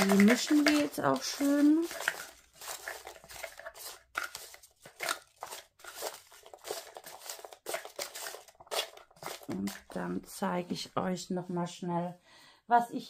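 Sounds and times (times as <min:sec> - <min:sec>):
paper slips rustling in a box: 0:00.0 - 0:10.0.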